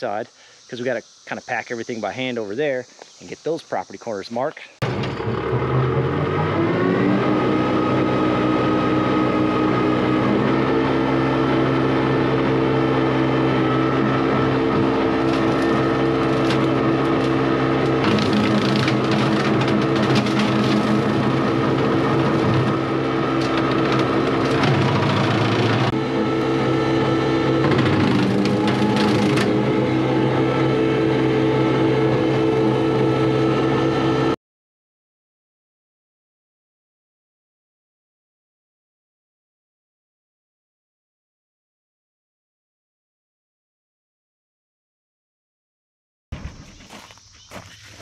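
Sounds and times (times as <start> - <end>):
tractor engine running: 4.8 - 34.4.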